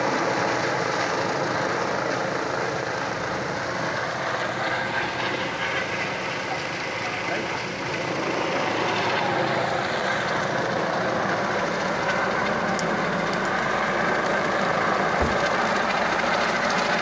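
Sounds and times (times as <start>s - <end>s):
steady engine drone: 0.0s - 17.0s
low thump: 15.2s - 15.6s.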